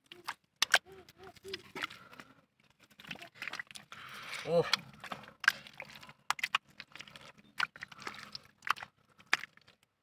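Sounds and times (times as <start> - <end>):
wet smacks and clicks: 0.0 - 2.2, 4.6 - 9.9
wet mud squelching: 0.0 - 10.0.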